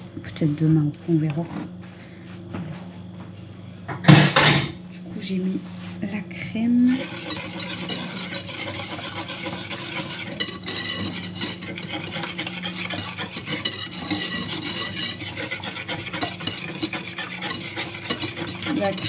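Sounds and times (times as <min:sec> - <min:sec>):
steady low hum: 0:00.0 - 0:19.0
utensil scraping a saucepan: 0:06.8 - 0:19.0.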